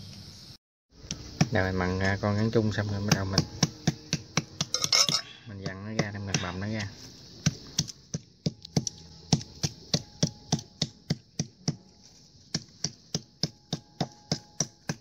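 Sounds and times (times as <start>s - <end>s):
knife chopping meat on board: 2.9s - 4.8s, 5.6s - 6.8s, 7.4s - 15.0s.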